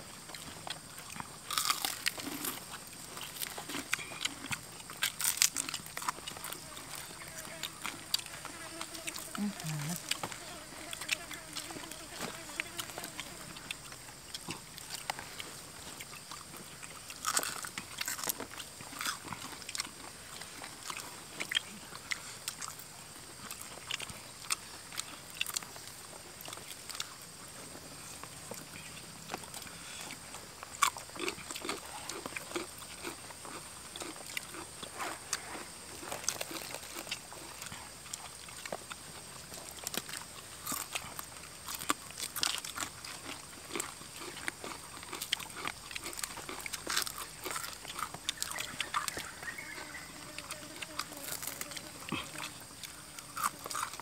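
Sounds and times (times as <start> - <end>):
people chewing crispy food: 0.0 - 54.0.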